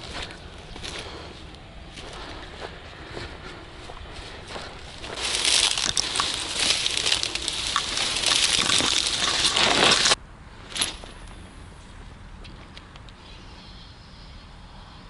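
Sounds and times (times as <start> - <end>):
dry grass being trampled: 0.0 - 11.4.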